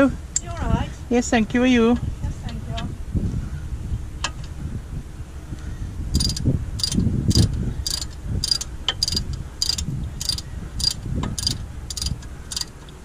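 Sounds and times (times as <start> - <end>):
ratchet spanner clicking: 6.2 - 13.0.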